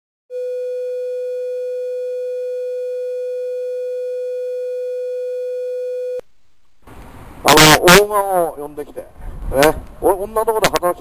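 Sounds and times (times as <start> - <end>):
steady sine test tone: 0.3 - 6.2.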